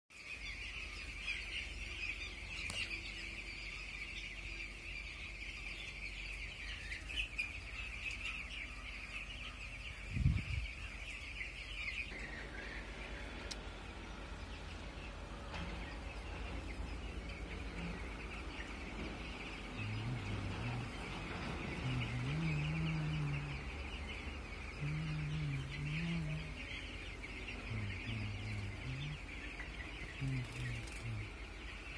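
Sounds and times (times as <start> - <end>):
chicks peeping: 0.1 - 31.9
low wavering pitched sound: 11.7 - 31.9.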